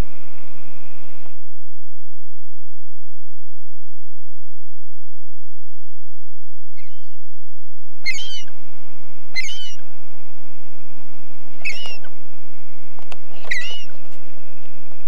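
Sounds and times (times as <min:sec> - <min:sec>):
low hum and hiss: 0:00.0 - 0:15.0
gull calls: 0:05.7 - 0:06.0, 0:06.8 - 0:07.2, 0:08.0 - 0:08.6, 0:09.3 - 0:09.9, 0:11.5 - 0:12.2, 0:13.3 - 0:14.0.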